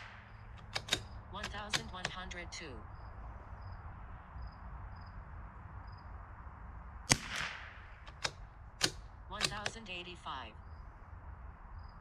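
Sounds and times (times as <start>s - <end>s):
light clicks: 0.0s - 2.3s
rifle shot with echo: 7.1s - 9.0s.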